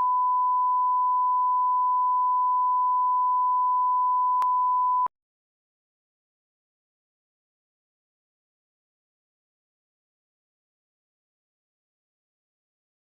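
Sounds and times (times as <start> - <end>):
steady sine test tone: 0.0 - 5.1.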